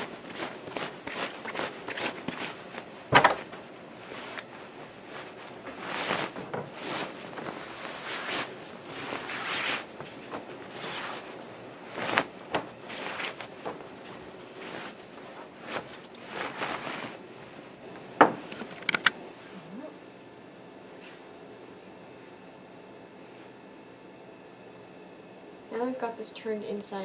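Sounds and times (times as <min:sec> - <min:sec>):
fabric rustling: 0:00.0 - 0:18.7.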